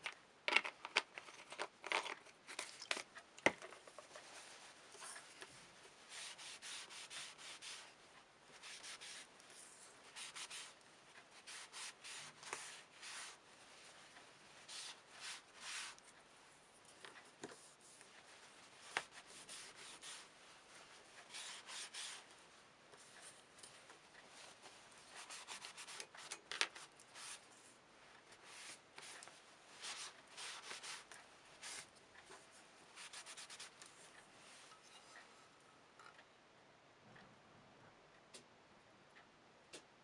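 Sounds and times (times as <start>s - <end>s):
cloth rubbing on leather: 21.3s - 22.2s.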